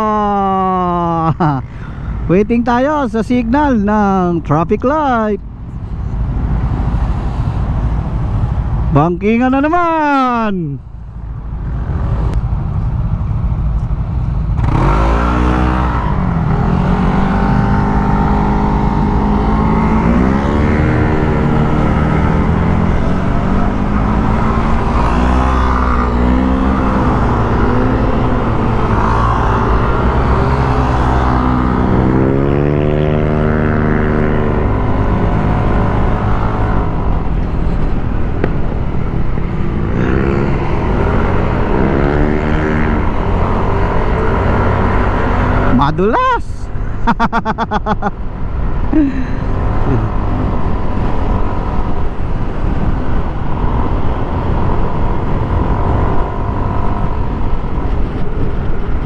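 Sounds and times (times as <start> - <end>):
motorcycle engine revving: 11.3 - 46.0.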